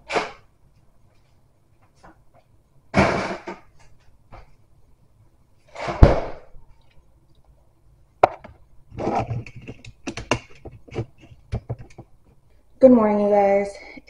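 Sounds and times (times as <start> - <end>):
light taps knocks and rustles: 9.3 - 12.4.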